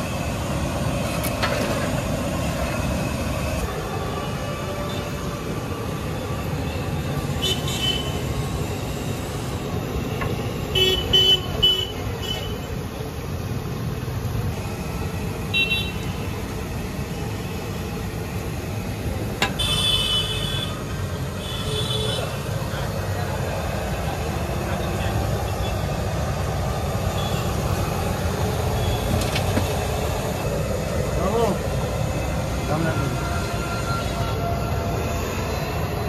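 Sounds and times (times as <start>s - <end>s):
traffic rumble: 0.0s - 36.0s
vehicle horn toots: 10.8s - 12.6s, 19.5s - 20.8s.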